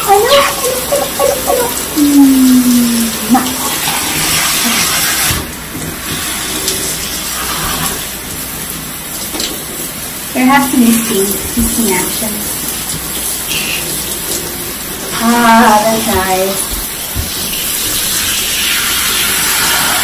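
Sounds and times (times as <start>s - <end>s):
woman's voice: 0.0s - 3.8s, 10.4s - 12.5s, 15.2s - 16.8s
shower spray running: 0.0s - 20.0s.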